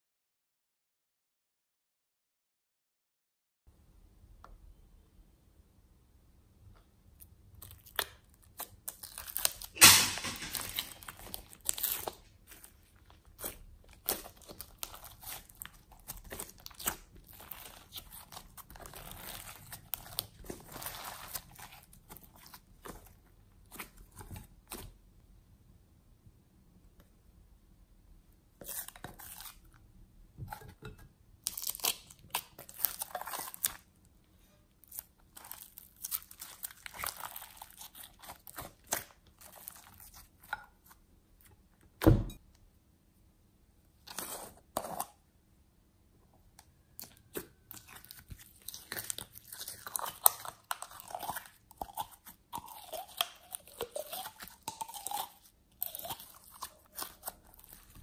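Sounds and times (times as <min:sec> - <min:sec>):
slime squelching by hand: 0:07.2 - 0:25.0, 0:31.4 - 0:34.0, 0:34.8 - 0:41.0, 0:46.9 - 0:58.0
loud thump: 0:42.0 - 0:42.4.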